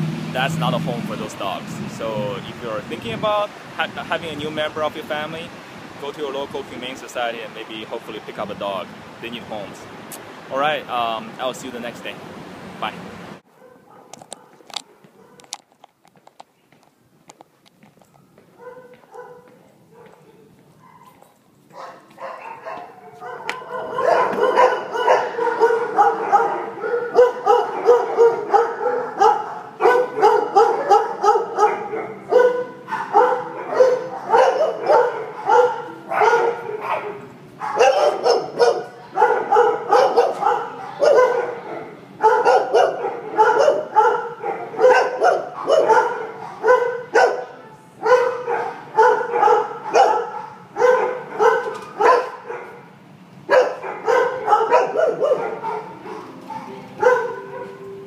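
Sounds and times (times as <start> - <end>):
dogs barking: 13.5 - 15.6, 18.2 - 58.0.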